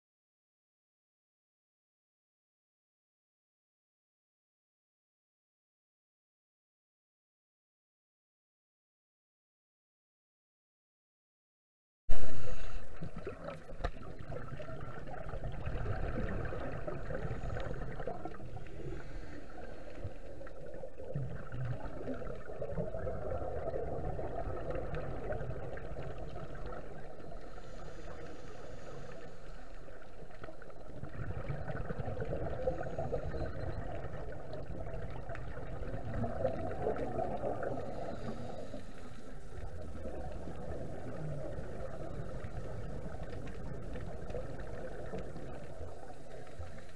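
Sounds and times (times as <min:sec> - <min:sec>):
diver regulator bubbles gurgling: 0:12.1 - 0:46.9.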